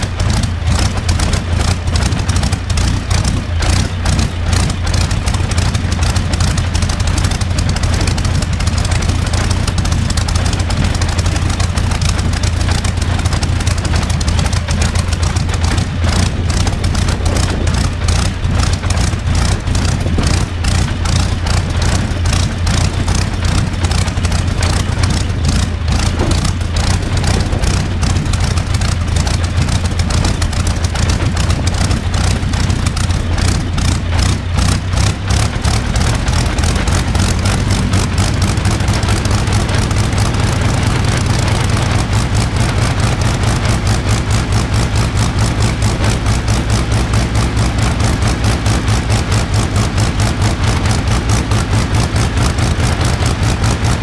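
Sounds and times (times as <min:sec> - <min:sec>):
aircraft engine running: 0:00.0 - 0:54.0.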